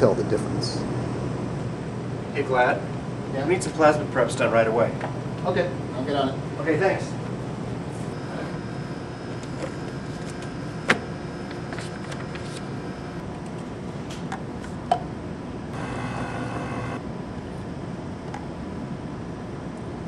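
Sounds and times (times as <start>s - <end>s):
ventilation hum: 0.0s - 20.0s
small motor whirring: 15.8s - 17.0s.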